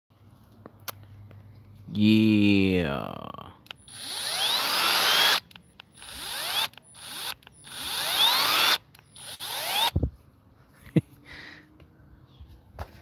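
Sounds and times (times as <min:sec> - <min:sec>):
electric drill whining: 0:03.8 - 0:10.0.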